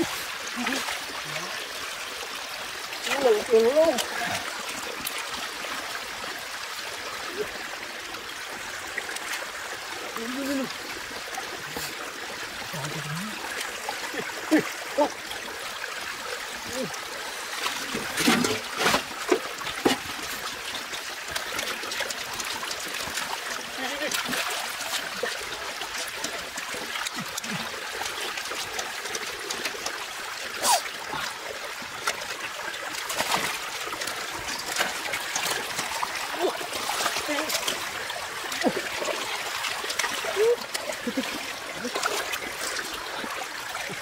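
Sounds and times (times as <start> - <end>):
muddy water trickling: 0.0 - 44.0
splashing in water: 16.6 - 31.3, 32.0 - 44.0.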